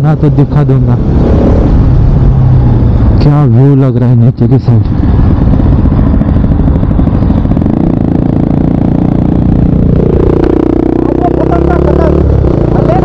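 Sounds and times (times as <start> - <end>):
road rumble: 0.0 - 13.0
wind: 0.0 - 13.0
motorcycle engine running: 4.6 - 13.0.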